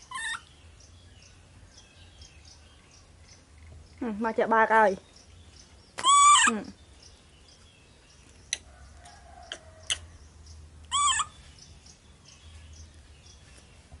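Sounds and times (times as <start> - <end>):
baby monkey calls: 0.0 - 0.5, 6.0 - 6.8, 10.9 - 11.4.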